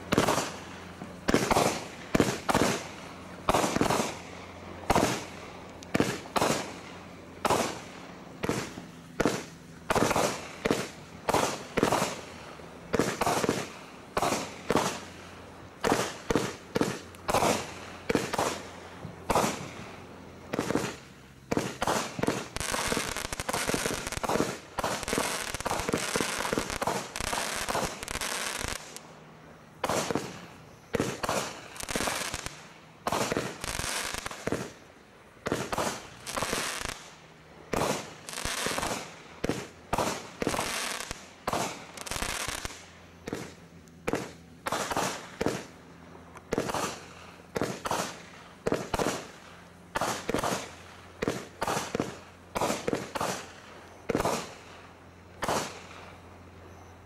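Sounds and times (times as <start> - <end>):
fireworks crackling: 0.0 - 57.0
fireworks shots and bursts: 0.0 - 57.0.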